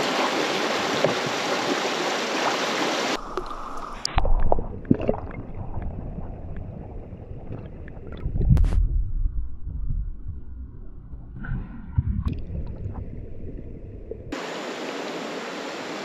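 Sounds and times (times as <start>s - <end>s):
underwater rumble of creek: 0.0s - 15.0s
small clicks and bubbling: 3.2s - 8.6s.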